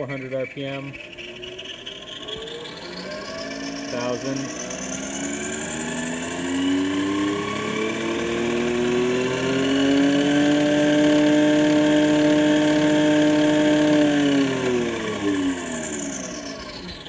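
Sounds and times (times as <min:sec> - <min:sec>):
electric motor whine revving: 0:00.0 - 0:17.0.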